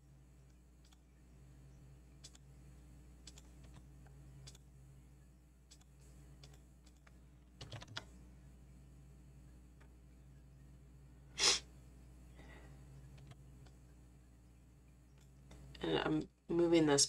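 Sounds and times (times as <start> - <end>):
low electrical hum: 0.0 - 17.0
computer mouse clicks: 0.5 - 1.0, 2.2 - 2.4, 3.2 - 3.8, 4.4 - 4.6, 5.7 - 8.1, 13.1 - 13.8
keyboard keystrokes: 2.2 - 2.4, 3.2 - 3.8, 5.7 - 8.1.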